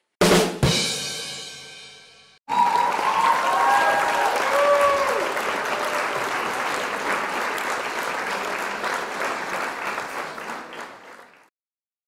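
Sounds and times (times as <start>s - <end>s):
crowd applause: 2.5s - 11.5s.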